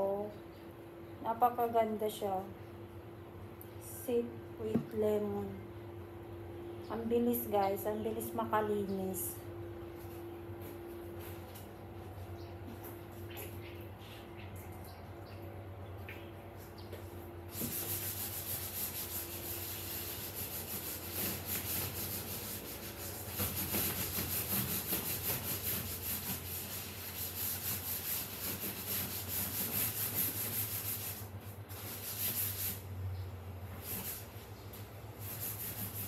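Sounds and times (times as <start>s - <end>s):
scrubbing a sofa cushion: 17.5s - 32.8s, 35.2s - 36.0s.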